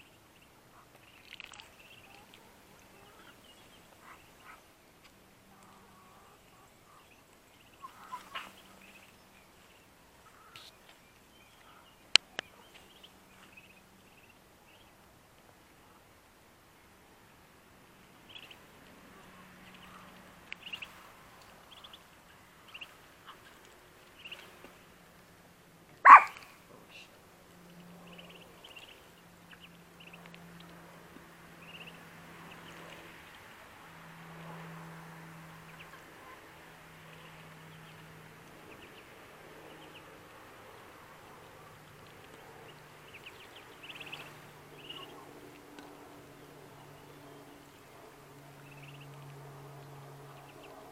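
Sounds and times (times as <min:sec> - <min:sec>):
ducklings peeping: 0:00.0 - 0:04.7, 0:05.5 - 0:15.0, 0:18.1 - 0:24.9, 0:26.0 - 0:33.6, 0:35.6 - 0:50.9
sharp bark-like call: 0:26.0 - 0:26.5.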